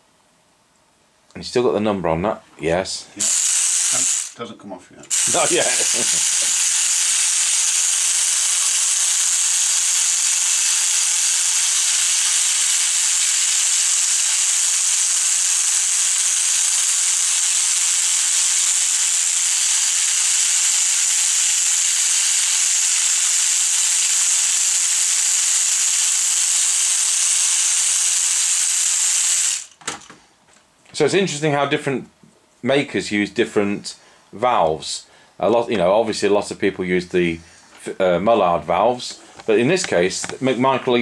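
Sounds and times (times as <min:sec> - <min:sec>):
air jet hissing: 0:03.2 - 0:04.4, 0:05.1 - 0:29.8.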